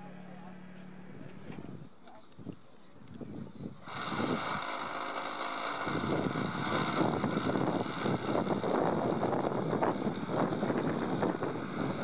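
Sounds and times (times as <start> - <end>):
electric starter whirring: 3.8 - 12.0.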